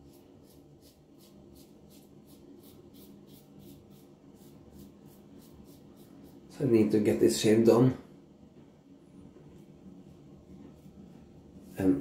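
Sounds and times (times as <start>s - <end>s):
razor scraping stubble: 0.0s - 6.6s.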